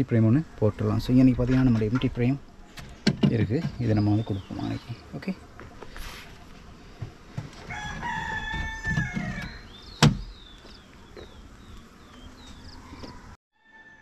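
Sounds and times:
rooster crowing: 7.6s - 9.7s, 12.6s - 14.0s.

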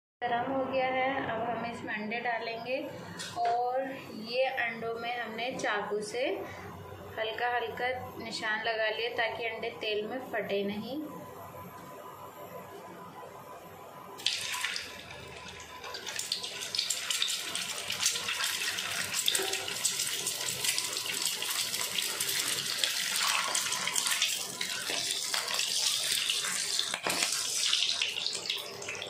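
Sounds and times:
oil sizzling in frying pan: 14.2s - 29.0s.

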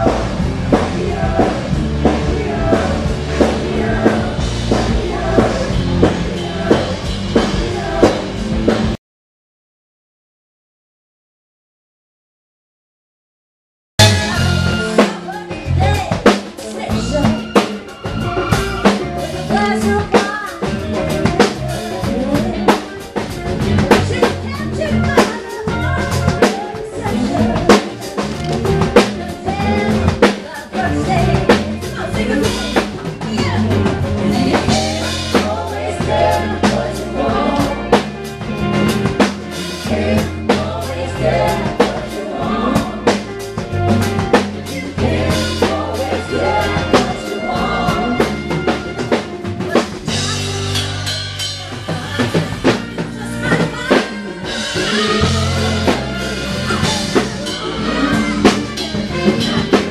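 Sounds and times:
live band playing: 0.0s - 9.0s, 14.0s - 59.9s
snare and bass drum beat: 14.0s - 59.9s.

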